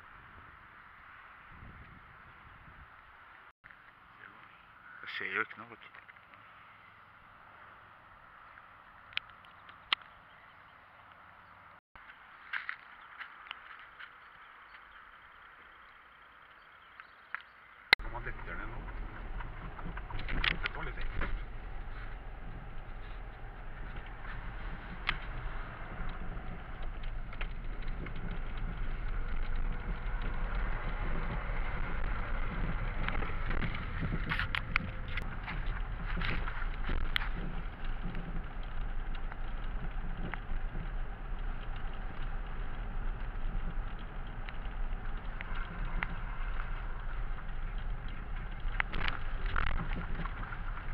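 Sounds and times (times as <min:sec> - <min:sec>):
road and engine noise: 0:00.0 - 0:50.9
tyres rumbling on wooden planks: 0:18.0 - 0:50.9.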